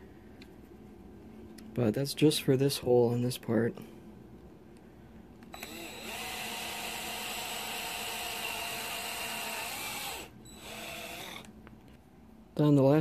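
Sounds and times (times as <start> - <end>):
cordless drill boring plastic: 5.5 - 11.5.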